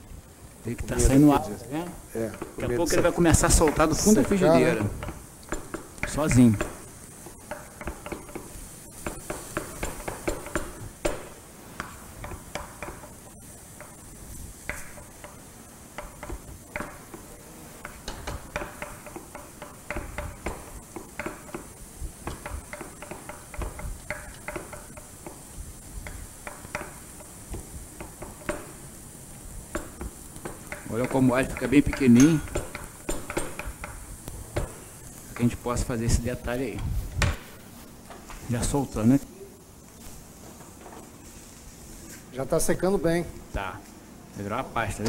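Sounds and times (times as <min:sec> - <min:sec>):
faint sizzle: 0:00.0 - 0:45.0
utensil scraping frying pan: 0:02.0 - 0:36.6.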